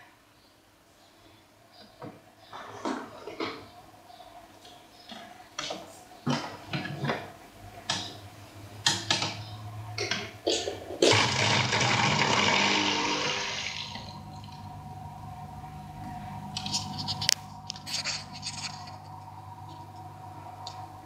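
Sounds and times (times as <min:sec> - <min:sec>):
electric pump hum: 0:11.0 - 0:21.0.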